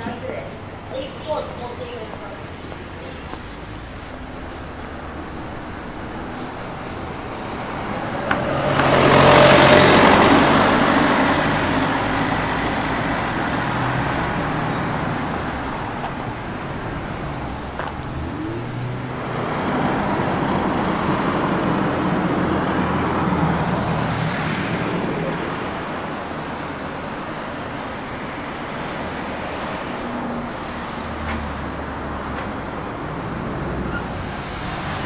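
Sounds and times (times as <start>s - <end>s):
vehicle passing: 0.7s - 26.6s.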